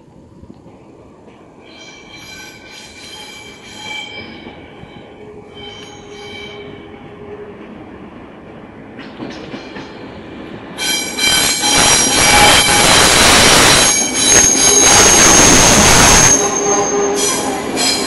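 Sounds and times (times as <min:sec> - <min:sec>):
train running gear rumble: 0:00.0 - 0:18.0
train wheels squealing on rails: 0:01.6 - 0:07.6, 0:09.0 - 0:10.2, 0:10.8 - 0:18.0.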